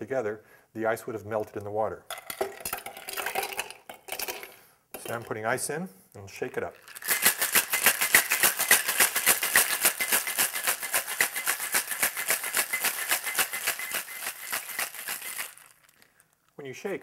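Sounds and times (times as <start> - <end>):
ice rattling in cocktail shaker: 1.5 - 5.4, 6.5 - 16.2.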